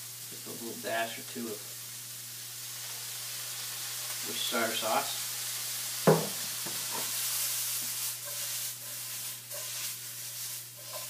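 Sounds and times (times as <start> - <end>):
food sizzling in a skillet: 0.0 - 11.0
food scraping in a shaken pan: 6.9 - 11.0.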